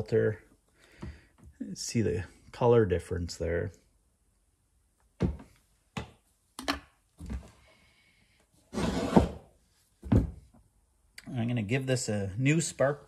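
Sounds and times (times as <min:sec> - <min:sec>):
scraping shuffle: 0:08.7 - 0:09.4.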